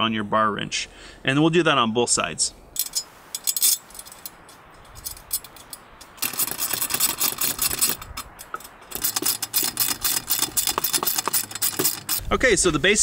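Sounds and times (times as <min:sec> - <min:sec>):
hand tools clicking on metal: 0:02.8 - 0:12.3.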